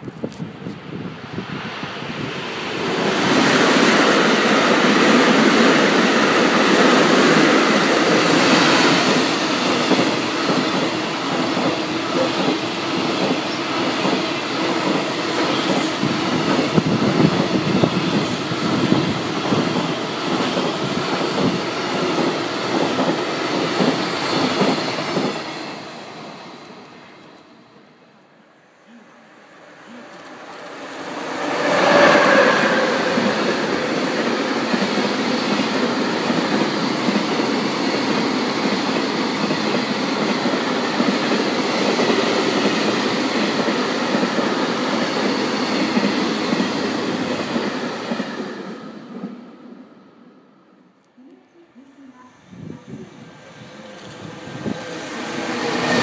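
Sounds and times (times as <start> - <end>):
electric locomotive passing: 0.6 - 56.0.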